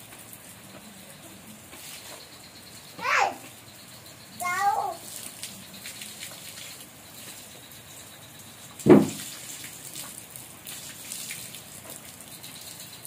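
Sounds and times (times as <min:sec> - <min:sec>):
hose water splashing on concrete: 0:00.0 - 0:03.6, 0:04.4 - 0:13.0
drips and small splashes: 0:00.0 - 0:13.0
loud thump: 0:08.8 - 0:09.2.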